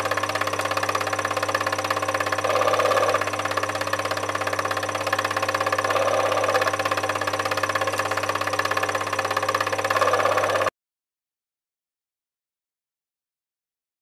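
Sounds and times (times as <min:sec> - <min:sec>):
film projector mechanical clatter: 0:00.0 - 0:10.7
motor hum: 0:00.0 - 0:10.7.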